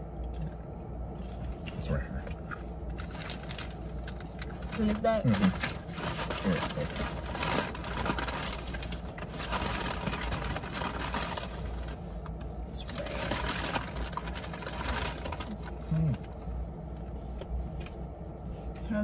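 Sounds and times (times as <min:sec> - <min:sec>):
low steady hum: 0:00.0 - 0:19.0
chewing: 0:00.2 - 0:03.1
food wrappers crinkling: 0:02.7 - 0:16.6.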